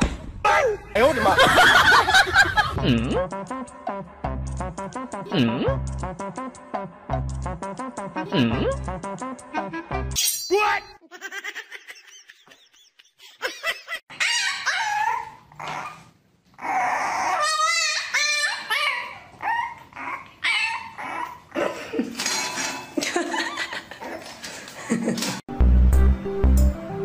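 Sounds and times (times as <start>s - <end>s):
puppy quavering cry: 14.1s - 21.6s
puppy yipping and whining: 14.1s - 21.6s.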